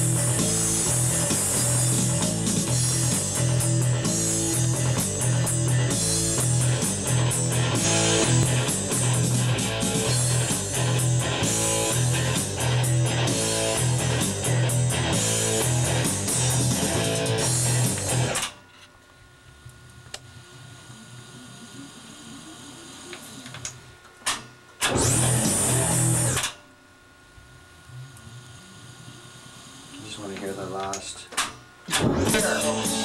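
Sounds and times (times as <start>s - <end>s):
rock song with guitar and drums: 0.0s - 18.4s, 24.9s - 26.4s, 31.9s - 33.0s.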